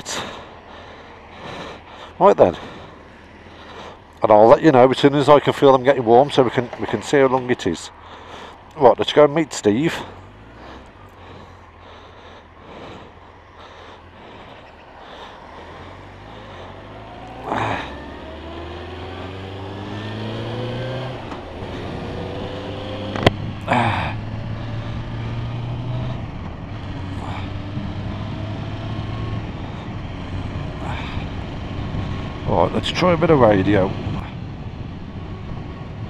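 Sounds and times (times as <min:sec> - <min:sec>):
motorcycle engine accelerating: 0:09.9 - 0:36.0.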